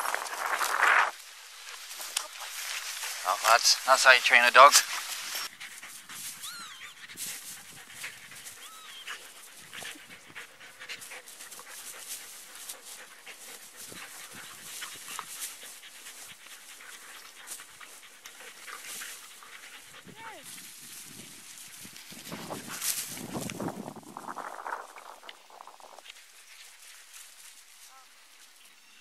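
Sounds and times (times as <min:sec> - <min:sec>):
rustling through long grass: 0:00.0 - 0:29.0
dogs panting: 0:01.6 - 0:27.8
dog high squeaks: 0:06.4 - 0:07.0, 0:08.6 - 0:09.2.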